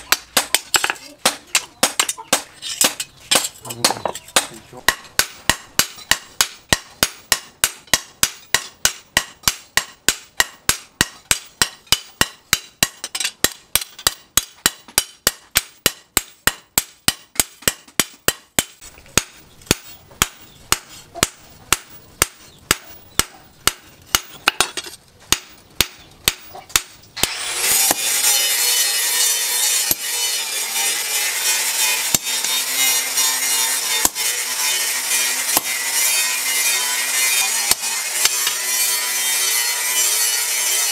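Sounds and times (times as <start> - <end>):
hammer strikes on an anvil: 0.0 - 30.2, 33.2 - 40.8
file rasping on metal: 27.2 - 40.9.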